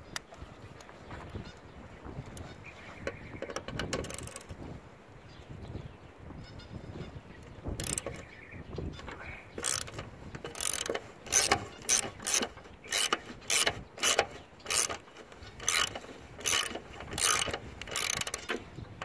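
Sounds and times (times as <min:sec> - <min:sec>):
ratchet clicking: 0:03.6 - 0:04.5, 0:07.8 - 0:08.2, 0:09.6 - 0:18.7.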